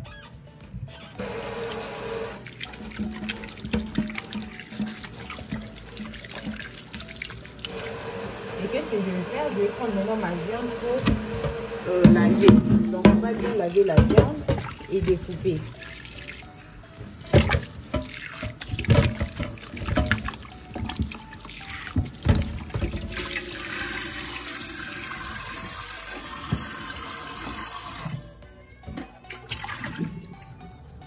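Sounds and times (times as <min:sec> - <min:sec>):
tap water running into metal pot: 0:01.2 - 0:28.3
water splashing and sloshing: 0:02.2 - 0:30.6.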